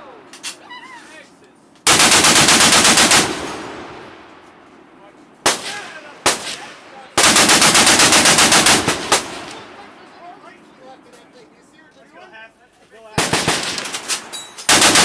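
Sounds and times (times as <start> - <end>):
machine gun firing: 1.8 - 4.1, 5.4 - 9.8, 13.2 - 15.0.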